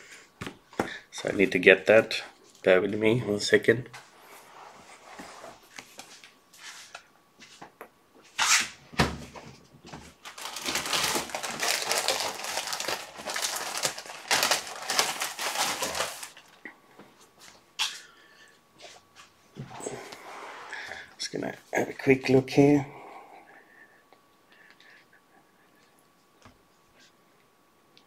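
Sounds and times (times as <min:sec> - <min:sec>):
plastic bags rustling: 0:10.0 - 0:16.6.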